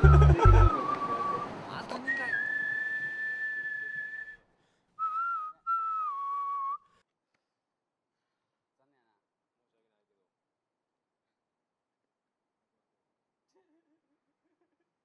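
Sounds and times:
person whistling: 0:00.0 - 0:04.4, 0:05.0 - 0:07.0.

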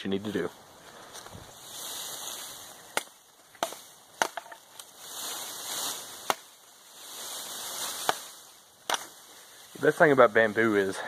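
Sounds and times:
rustling hiss: 0:00.0 - 0:11.0
axe chopping bamboo: 0:02.9 - 0:04.6, 0:06.2 - 0:06.6, 0:08.0 - 0:09.1.

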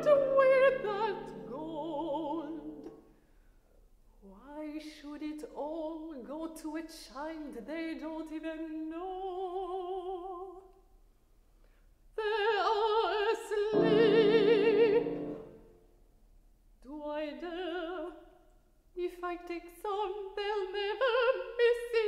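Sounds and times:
grand piano: 0:00.0 - 0:03.0, 0:13.0 - 0:15.7
woman singing opera: 0:00.0 - 0:03.0, 0:04.2 - 0:10.7, 0:12.2 - 0:15.4, 0:16.8 - 0:18.3, 0:19.0 - 0:22.0.

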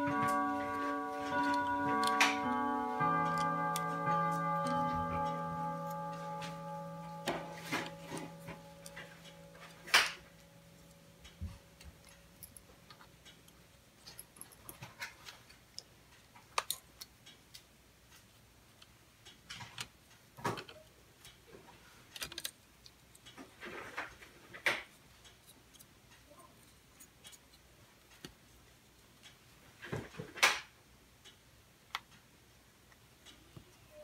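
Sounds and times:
screwdrivers and parts clicking: 0:00.0 - 0:17.6, 0:22.1 - 0:23.4, 0:24.6 - 0:26.0.

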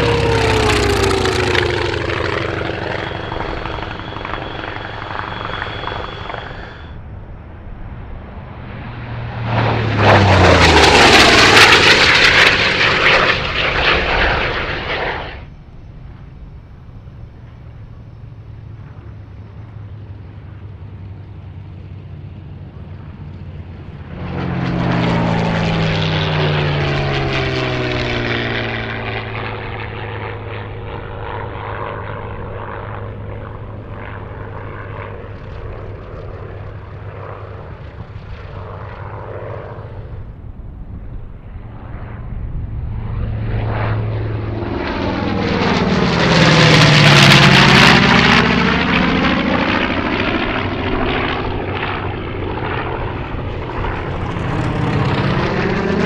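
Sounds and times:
propeller fighter planes passing: 0:00.0 - 0:56.0.

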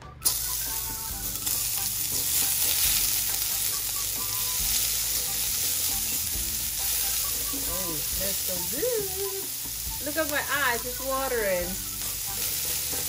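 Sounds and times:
onion sizzling in a frying pan: 0:00.0 - 0:13.0
tongs stirring in a pan: 0:00.2 - 0:13.0.

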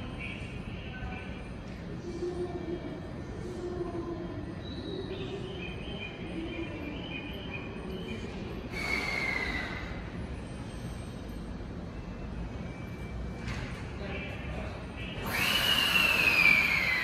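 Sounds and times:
train humming: 0:00.0 - 0:17.0
hiss with falling squeal: 0:15.2 - 0:17.0.

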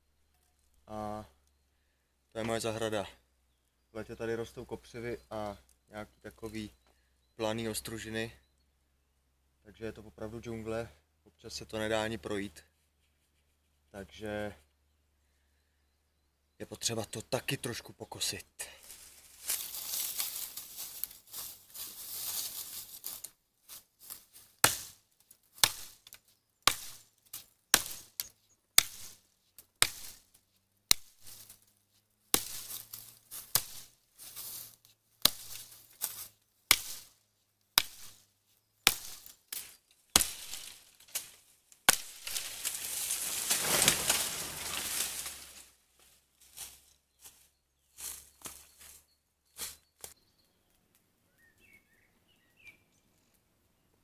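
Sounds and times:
rustling dry brush: 0:18.8 - 0:25.0, 0:26.7 - 0:37.2, 0:37.8 - 0:47.4
chopping blows on brush: 0:24.6 - 0:25.0, 0:25.6 - 0:29.2, 0:29.8 - 0:30.3, 0:30.9 - 0:31.5, 0:32.3 - 0:34.0, 0:35.2 - 0:36.1, 0:36.7 - 0:37.2, 0:37.8 - 0:38.2, 0:38.8 - 0:41.3, 0:41.9 - 0:42.8.

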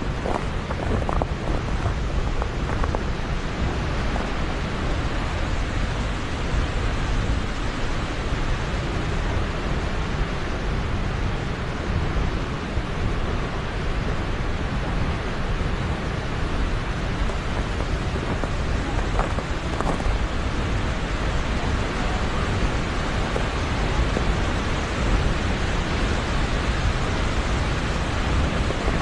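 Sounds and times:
deep rumble: 0:00.0 - 0:07.7, 0:12.0 - 0:29.0
waterfall rushing: 0:12.4 - 0:29.0.

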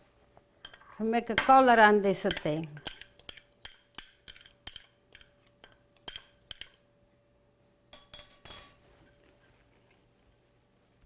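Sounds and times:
metal spoon clinking glass bowl: 0:00.6 - 0:06.8, 0:07.9 - 0:08.8.

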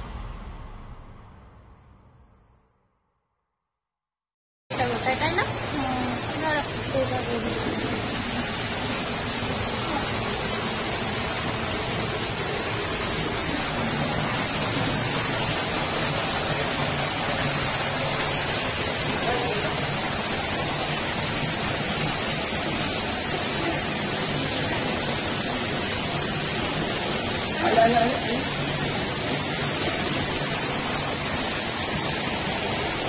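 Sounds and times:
waterfall rushing into pool: 0:04.7 - 0:33.0.

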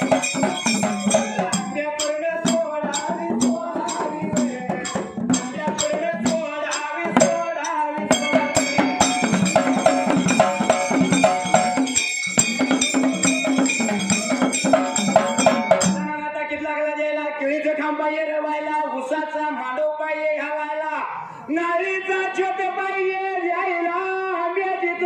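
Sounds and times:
repeating melodic figure: 0:00.0 - 0:01.8, 0:08.0 - 0:16.1
dhol and hand percussion: 0:00.0 - 0:16.3.

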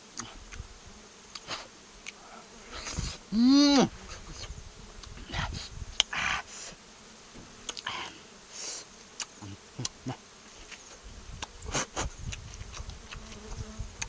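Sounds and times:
bees buzzing: 0:00.0 - 0:14.0
wet mouth clicks and slurps: 0:11.4 - 0:13.5.

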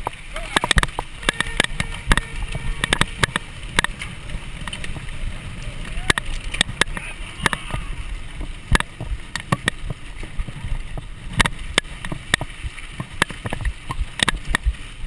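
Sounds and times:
bike rattling over bumps: 0:00.0 - 0:15.0
tyres and wind rumble: 0:00.0 - 0:15.0.

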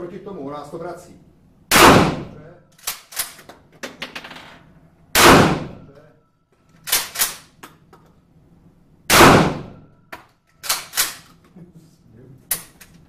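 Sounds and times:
fainter sharper gunshots: 0:01.7 - 0:02.4, 0:05.2 - 0:05.8, 0:09.1 - 0:09.8
loud heavy gunshots: 0:01.7 - 0:02.4, 0:05.2 - 0:05.9, 0:09.1 - 0:09.8.

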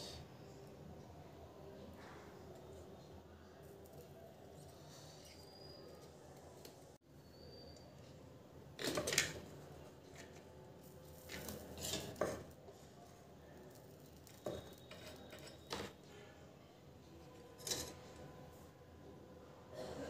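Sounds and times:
soldering iron scraping metal: 0:11.2 - 0:12.6, 0:14.3 - 0:16.0.

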